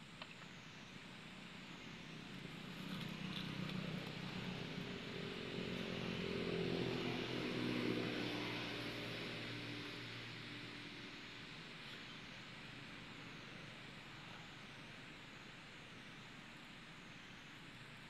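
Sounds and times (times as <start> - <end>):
vehicle engine passing by: 2.0 - 12.2.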